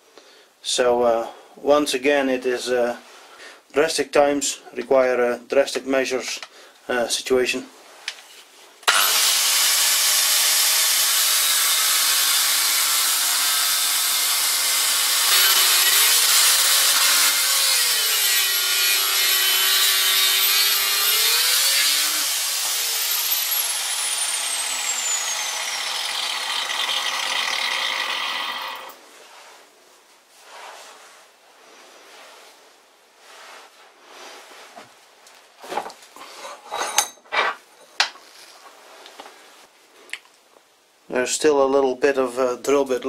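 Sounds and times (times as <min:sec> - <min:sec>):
angle grinder grinding steel: 0:08.9 - 0:29.0.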